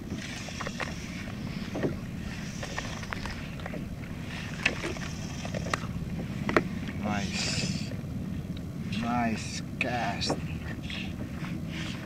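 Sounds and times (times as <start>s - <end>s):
waves slapping against kayak hull: 0.0s - 7.1s.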